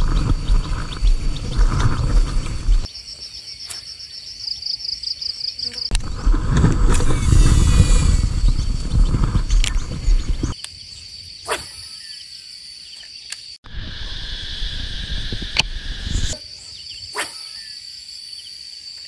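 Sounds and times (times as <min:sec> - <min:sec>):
low rumbling microphone noise: 0:00.0 - 0:02.9, 0:05.9 - 0:10.6
insects shrilling: 0:00.0 - 0:19.0.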